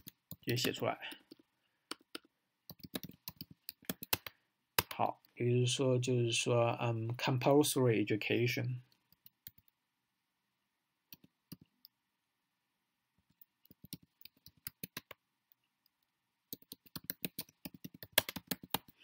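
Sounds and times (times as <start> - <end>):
computer keyboard key clicks: 16.6 - 18.9.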